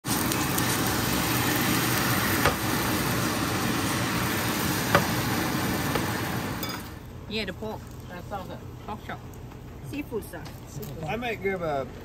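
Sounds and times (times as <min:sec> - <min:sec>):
food sizzling in hot oil: 0:00.0 - 0:07.1.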